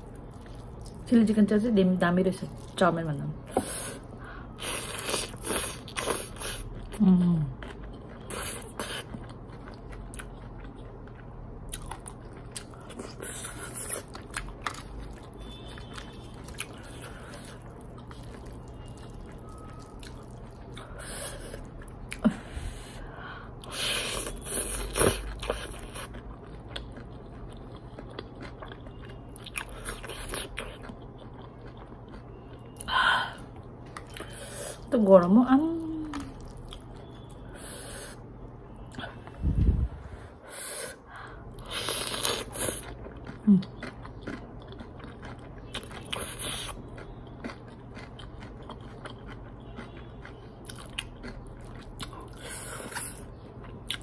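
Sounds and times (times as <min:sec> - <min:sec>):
chewing and slurping noodles: 0:03.4 - 0:07.0, 0:07.6 - 0:22.3, 0:23.6 - 0:32.9, 0:41.5 - 0:54.0
low falling hum: 0:38.5 - 0:40.5.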